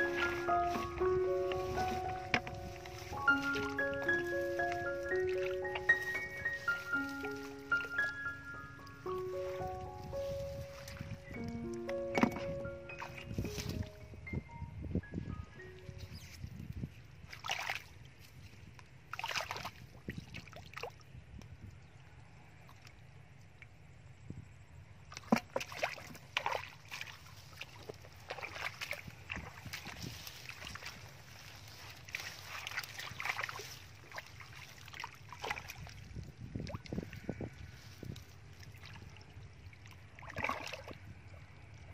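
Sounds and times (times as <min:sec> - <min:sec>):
splashing in muddy water: 0:00.0 - 0:14.0, 0:17.3 - 0:21.1, 0:25.1 - 0:41.9.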